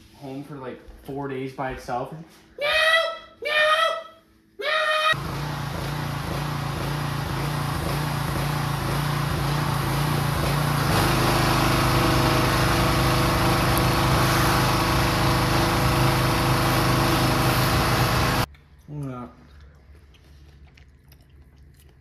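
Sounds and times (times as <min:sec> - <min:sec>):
small motor humming: 0:05.1 - 0:18.5.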